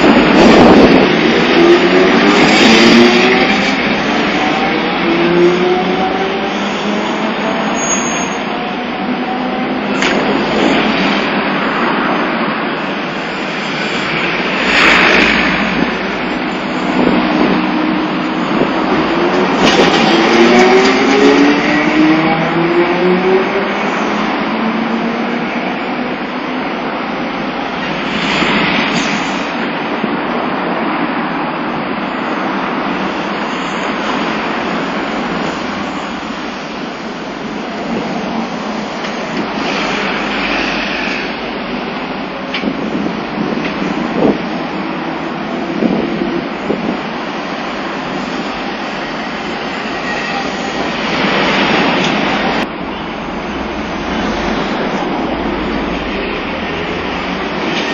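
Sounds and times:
cars passing close by: 0.0s - 7.8s, 8.8s - 32.0s, 50.9s - 57.9s
streetcar running on tracks: 0.0s - 57.9s
traffic rumble: 0.0s - 57.9s.

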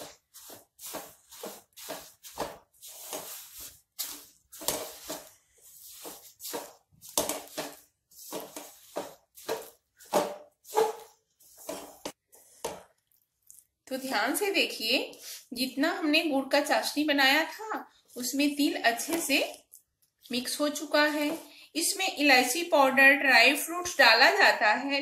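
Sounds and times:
spatula scraping in syrup: 0.0s - 13.6s.

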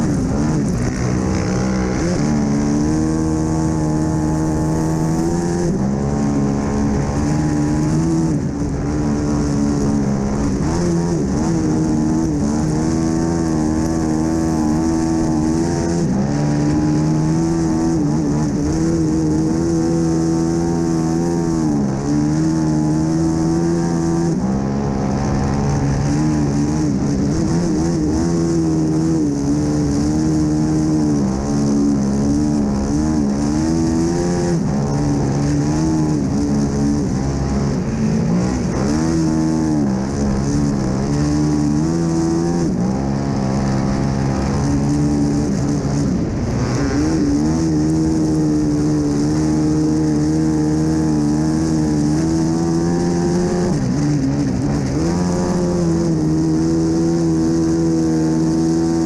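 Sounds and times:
quad engine revving: 0.0s - 59.0s.

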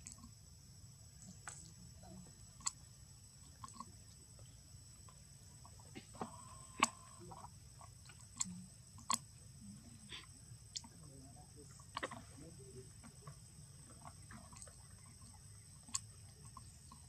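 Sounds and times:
steady high-pitched hum: 0.0s - 17.0s.

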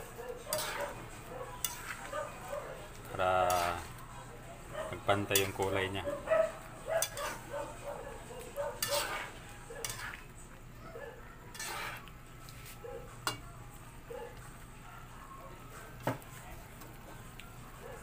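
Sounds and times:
metal spatula scraping frying pan: 0.4s - 2.1s, 3.4s - 4.0s, 7.0s - 7.5s, 8.7s - 10.3s, 11.5s - 12.7s.

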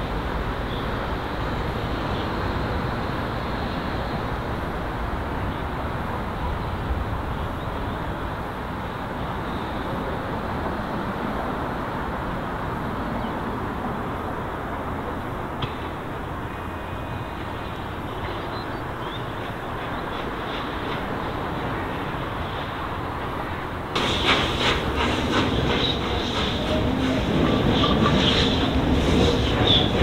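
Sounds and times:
train rumble: 0.0s - 30.0s.

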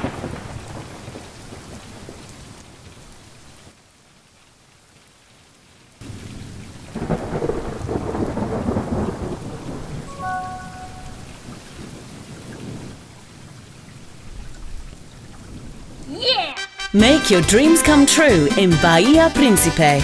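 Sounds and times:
thunder rumbling: 0.0s - 2.3s, 6.0s - 13.0s
rain falling: 0.0s - 20.0s.

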